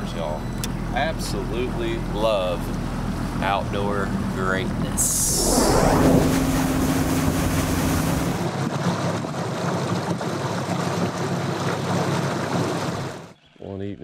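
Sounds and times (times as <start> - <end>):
outboard motor running: 0.3 - 8.5
rush of water and wind: 5.0 - 13.1.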